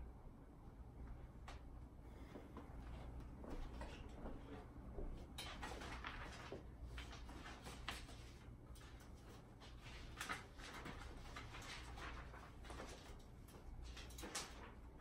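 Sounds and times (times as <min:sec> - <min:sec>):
sheet music rustling: 0:05.2 - 0:15.0.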